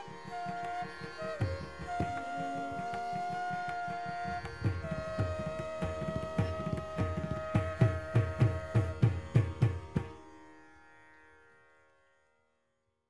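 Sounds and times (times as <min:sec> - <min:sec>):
bamboo flute: 0:00.0 - 0:10.2
violin holding a long note: 0:00.0 - 0:10.2
drum strokes: 0:01.4 - 0:10.2.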